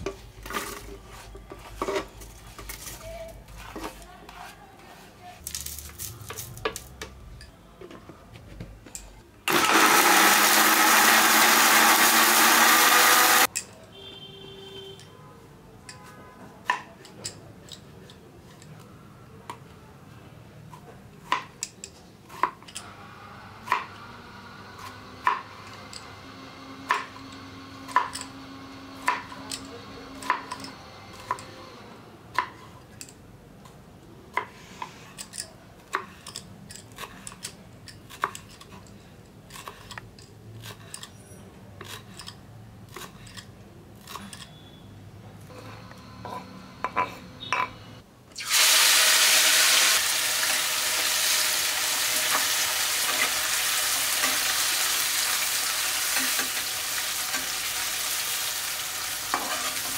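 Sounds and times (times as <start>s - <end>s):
electric mixer grinding seeds: 9.5s - 13.5s, 48.6s - 59.9s.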